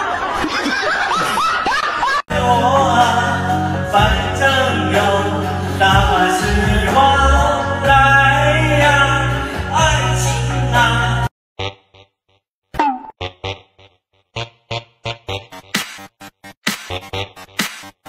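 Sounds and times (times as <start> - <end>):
backing track music: 2.3 - 11.3, 14.9 - 18.0
man singing into a microphone: 2.3 - 11.3.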